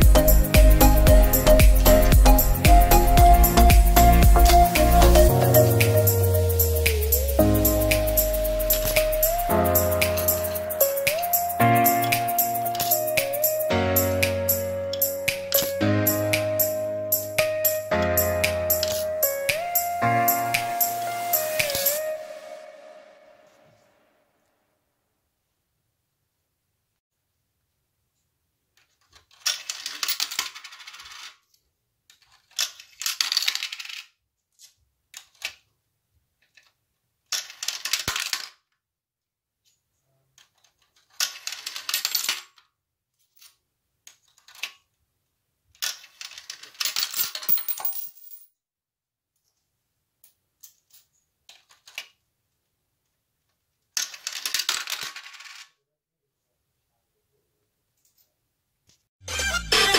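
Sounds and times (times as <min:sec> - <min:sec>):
coins clattering and rolling: 0:08.2 - 0:13.6, 0:15.0 - 0:15.8, 0:29.4 - 0:31.4, 0:32.5 - 0:34.1, 0:37.3 - 0:38.6, 0:41.1 - 0:42.6, 0:45.8 - 0:48.5, 0:54.0 - 0:55.8.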